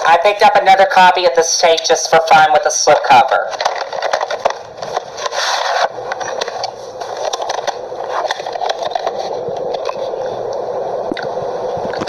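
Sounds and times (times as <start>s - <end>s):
cassette scraping out of cardboard: 3.6s - 9.4s.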